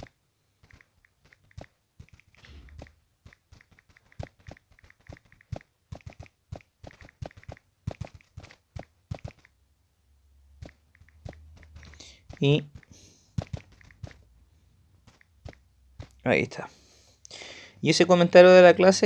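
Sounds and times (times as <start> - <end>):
taps on phone screen: 0.0 - 9.5, 10.6 - 14.3.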